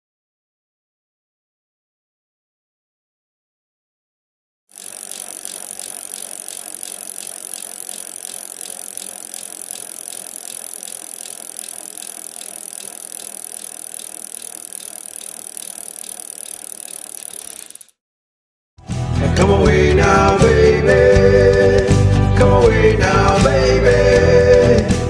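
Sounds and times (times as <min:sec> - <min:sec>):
bicycle freewheel clicking: 0:04.7 - 0:18.0.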